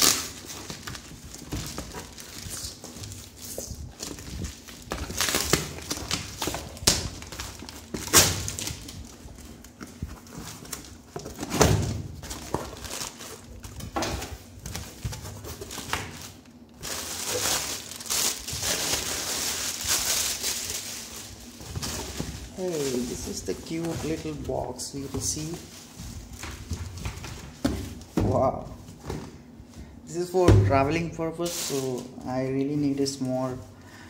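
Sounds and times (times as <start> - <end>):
packing tape tearing: 0.0 - 24.4
cardboard rustling: 0.0 - 29.4.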